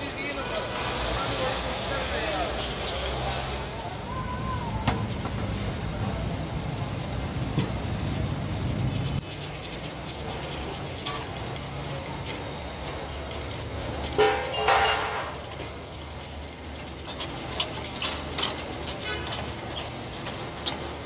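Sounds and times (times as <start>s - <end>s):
meat simmering and crackling: 0.0s - 21.0s
low steady rumble: 3.8s - 14.6s.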